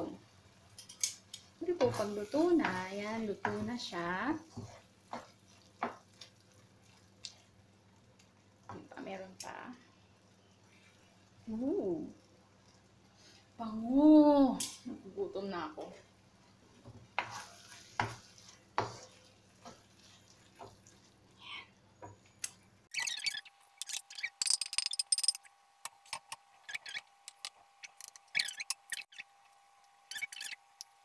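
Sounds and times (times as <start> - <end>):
wooden spoon scraping in a wok: 1.6 - 7.6, 15.9 - 21.2.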